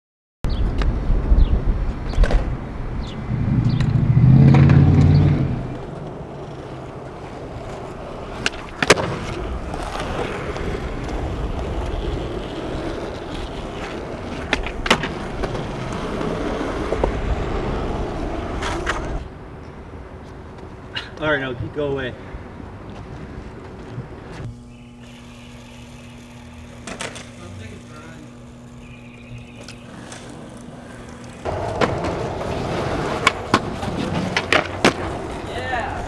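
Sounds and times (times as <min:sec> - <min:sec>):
skateboard wheels rolling on concrete: 0:00.5 - 0:36.0
loud low hum: 0:02.5 - 0:12.5, 0:24.1 - 0:35.5
skateboard clacks: 0:04.6 - 0:19.2, 0:29.6 - 0:36.0.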